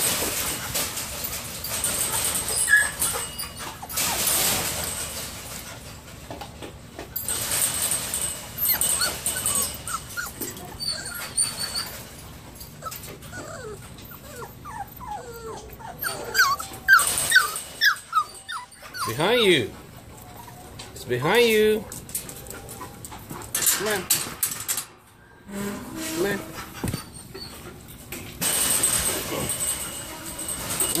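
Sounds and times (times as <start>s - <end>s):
puppies scuffling and rustling: 0.0s - 31.0s
puppies whimpering and whining: 1.7s - 5.0s, 7.2s - 21.7s, 25.7s - 30.0s.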